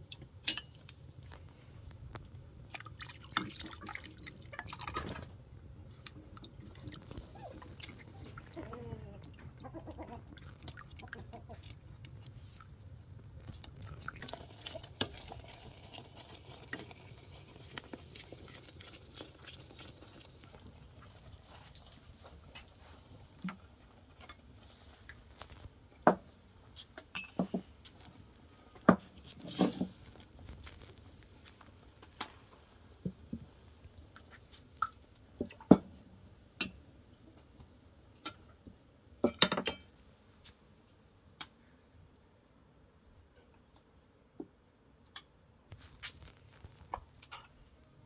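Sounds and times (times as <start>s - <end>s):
cookware and utensils clinking: 0.4s - 0.8s, 27.1s - 27.7s.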